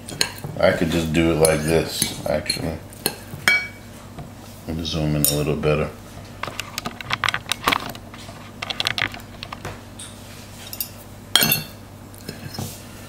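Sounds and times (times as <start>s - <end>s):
cutlery clatter: 10.7s - 11.8s.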